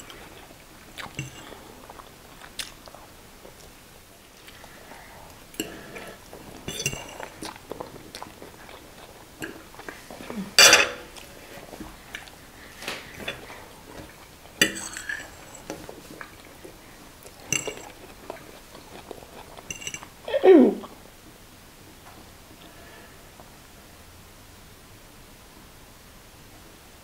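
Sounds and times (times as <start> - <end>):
noodles slurped and chewed: 0.0 - 20.2
forks scraping and clicking on plates: 1.1 - 1.6, 5.6 - 7.5, 10.6 - 11.3, 13.0 - 16.0, 17.4 - 18.1, 19.6 - 20.1.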